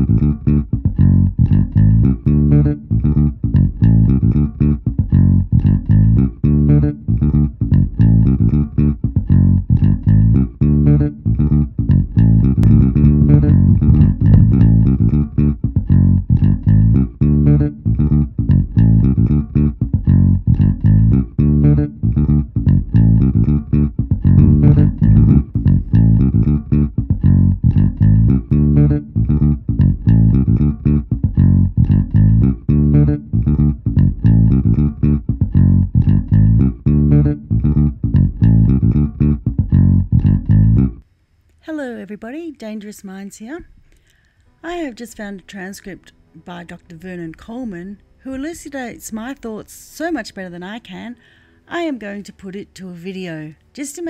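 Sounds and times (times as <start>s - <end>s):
guitar: 0.0s - 41.0s
plucked bass line: 0.0s - 41.0s.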